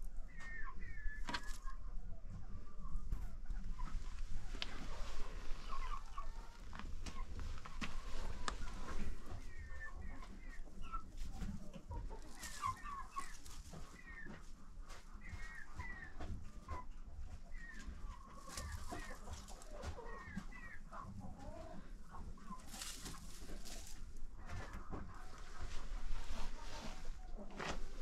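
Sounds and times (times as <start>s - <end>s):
poultry clucking and chirping: 0.0s - 28.0s
rustle: 3.9s - 9.5s, 11.2s - 14.2s, 22.5s - 28.0s.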